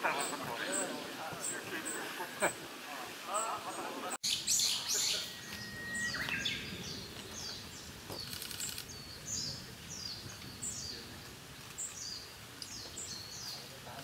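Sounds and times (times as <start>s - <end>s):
buzzy bird rattle: 8.2s - 8.9s.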